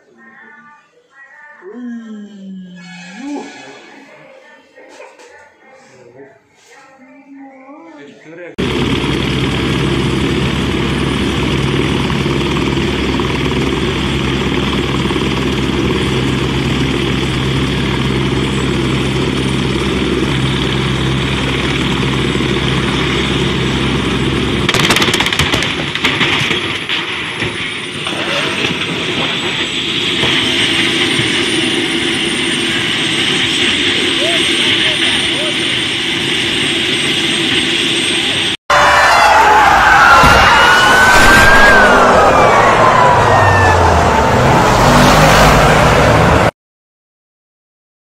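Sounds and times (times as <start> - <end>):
helicopter rotor beating: 8.6 - 38.6, 40.1 - 46.5
turbine engine whine: 8.6 - 46.5.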